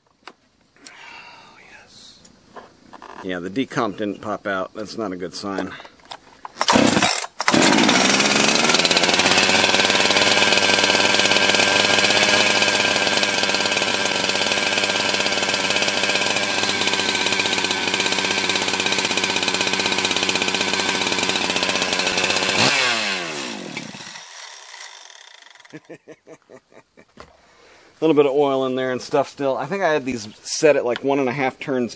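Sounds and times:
chainsaw idling: 6.6 - 26.1.

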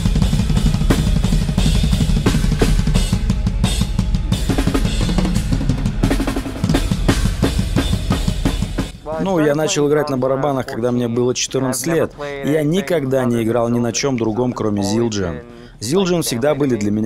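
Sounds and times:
bass drum strokes: 0.0 - 9.1.

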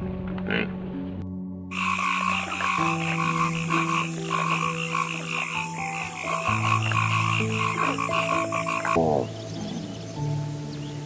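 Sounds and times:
soft background music: 0.0 - 11.0
frogs calling: 1.7 - 10.0.

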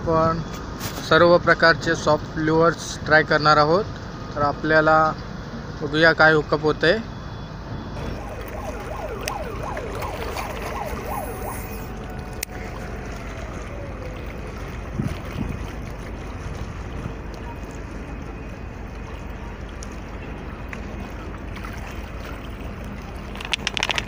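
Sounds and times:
wind and water rumble: 0.0 - 24.0
distant siren wailing: 7.2 - 21.4.

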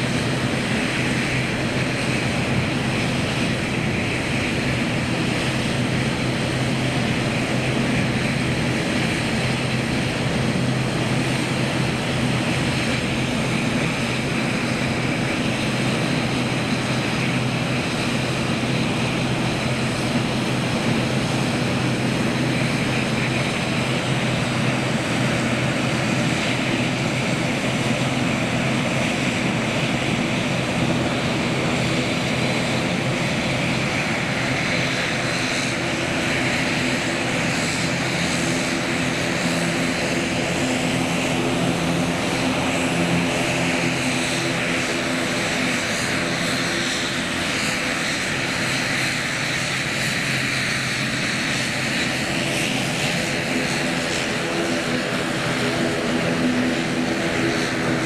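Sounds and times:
turboprop engines running: 0.0 - 58.0.

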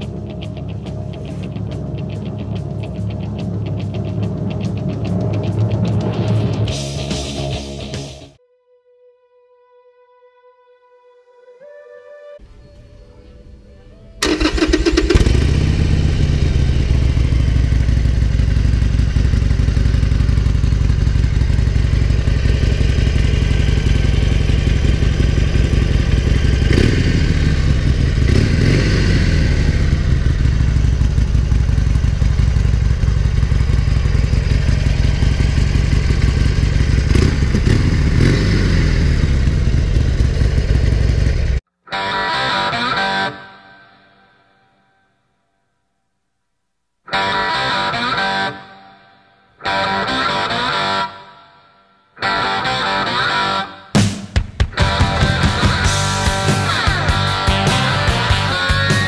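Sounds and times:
motorcycle engine starting: 0.0 - 8.4, 12.4 - 41.7, 52.2 - 59.0
motorcycle engine revving: 12.5 - 41.7, 54.0 - 59.0
motorcycle engine idling: 13.0 - 41.6, 54.7 - 59.0.

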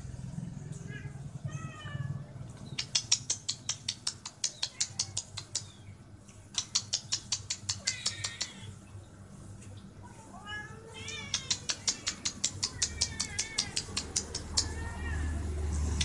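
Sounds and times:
rapid sharp ticks: 2.5 - 8.6, 11.3 - 14.8
kitten meowing: 10.4 - 15.3.

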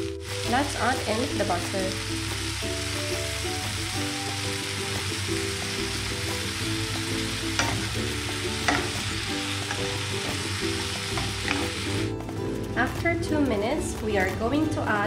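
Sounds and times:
mushrooms sizzling in a frying pan: 0.0 - 15.0
spatula knocking against pan: 7.6 - 7.9, 8.6 - 9.0.

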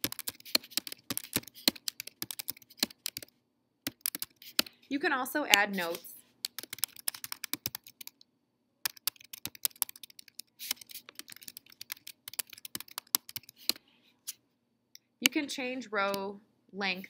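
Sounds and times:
typing on a keyboard: 0.0 - 3.3, 3.9 - 4.7, 5.5 - 8.2, 8.9 - 13.8.

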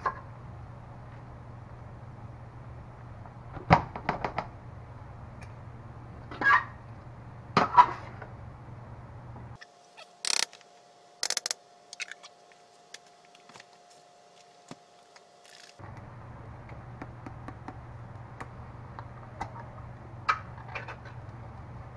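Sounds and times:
steady low hum: 0.0 - 21.9
scattered clicks and knocks: 10.2 - 10.6, 11.2 - 11.6.

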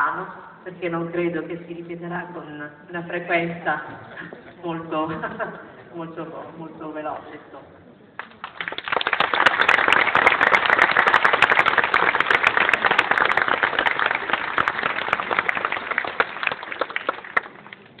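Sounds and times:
crowd applauding: 8.2 - 18.0.

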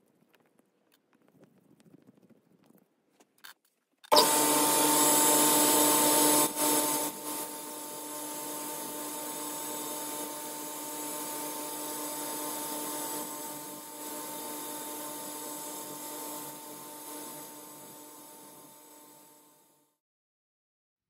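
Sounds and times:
metal lathe whining: 4.1 - 19.4.

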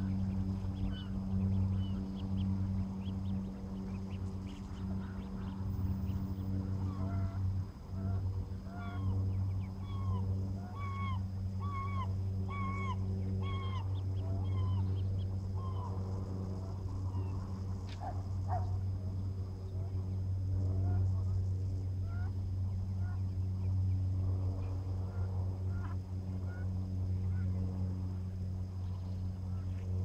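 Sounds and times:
steady low hum: 0.0 - 30.0
waterfowl honking calls: 6.6 - 9.1.

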